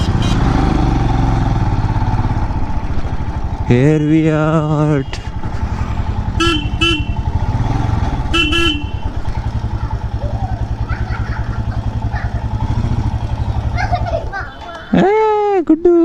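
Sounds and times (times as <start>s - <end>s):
motorcycle horn toots: 0.0s - 0.7s, 4.8s - 5.4s, 6.3s - 9.8s
motorcycle engine running: 0.0s - 15.1s.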